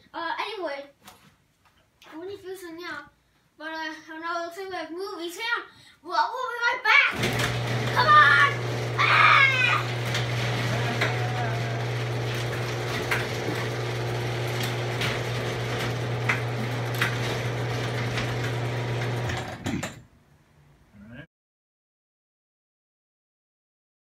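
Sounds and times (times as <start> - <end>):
garage door opener clicks: 7.1 - 20.1
garage door opener motor humming: 7.1 - 20.1.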